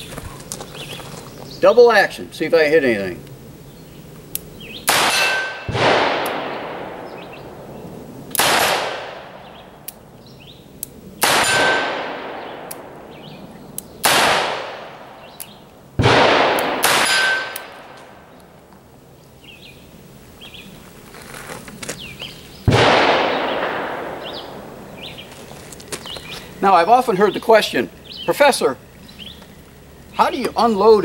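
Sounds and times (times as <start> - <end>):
revolver gunshots with echo: 4.8 - 9.8, 11.2 - 15.4, 16.0 - 18.3, 22.7 - 25.3.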